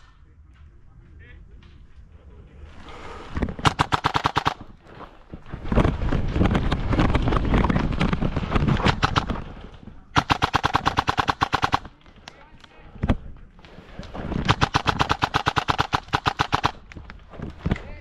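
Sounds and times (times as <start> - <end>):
airsoft gun rapid firing: 3.6 - 4.8, 8.0 - 9.5, 10.2 - 12.0, 14.1 - 16.9.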